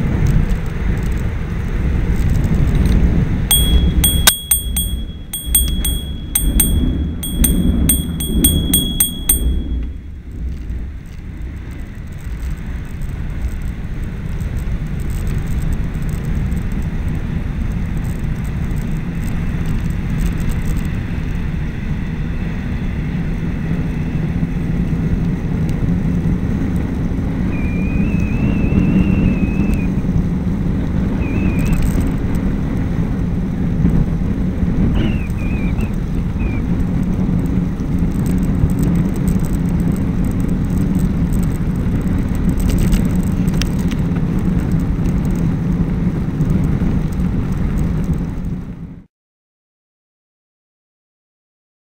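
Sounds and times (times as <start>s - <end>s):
short high chirps: 3.5s - 10.0s
rushing wind: 10.5s - 48.9s.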